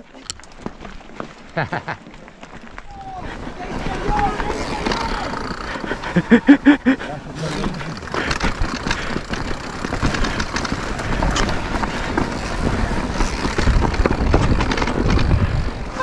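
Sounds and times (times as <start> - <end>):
bike rattling over stones: 0.0 - 16.0
wind rumbling on microphone: 7.3 - 16.0.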